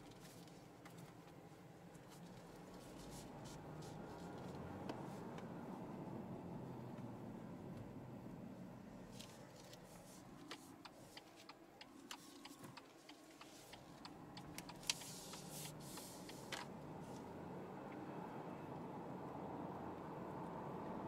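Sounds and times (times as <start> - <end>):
engine and road noise hum: 0.0 - 21.0
turn signal ticking: 9.3 - 18.1.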